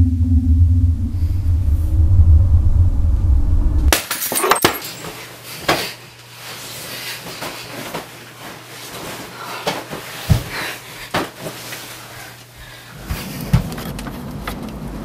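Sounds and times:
low rumbling drone: 0.0 - 3.9
bedding rustling: 4.8 - 14.4
knocks and thumps on bed: 9.7 - 11.5.

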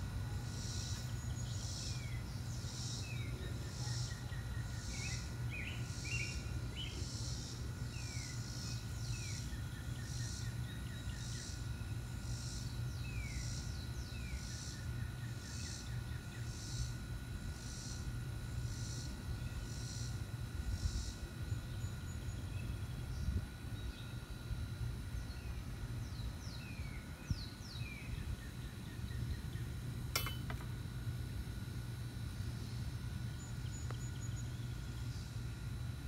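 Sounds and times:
constant low hum: 0.0 - 36.0
insect pulsing rasp: 0.4 - 10.6, 11.2 - 13.8, 15.4 - 18.1, 18.7 - 21.2.

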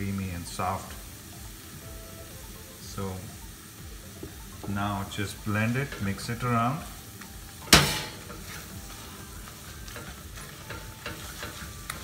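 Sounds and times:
hot pan sizzling: 0.0 - 12.0
spatula mashing potatoes in pan: 4.0 - 12.0.

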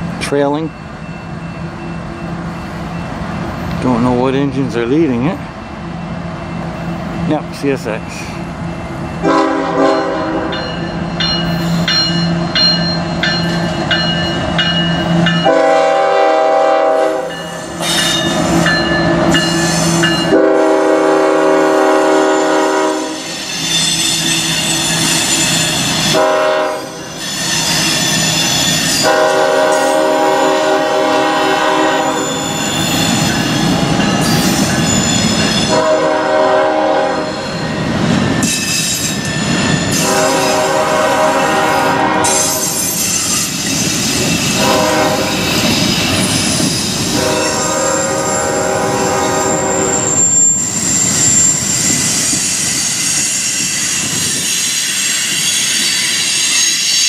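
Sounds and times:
locomotive air horn blasts: 9.2 - 10.5, 15.4 - 17.4, 20.2 - 23.3, 26.1 - 27.1, 29.0 - 32.6, 35.7 - 37.4, 40.0 - 42.7, 44.6 - 45.4, 47.1 - 50.1.

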